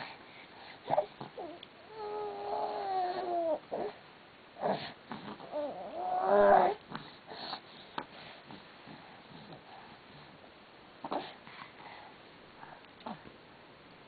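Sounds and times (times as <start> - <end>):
infant vocalizing: 0.9 - 4.0, 4.6 - 6.8
infant breathing: 4.6 - 10.4.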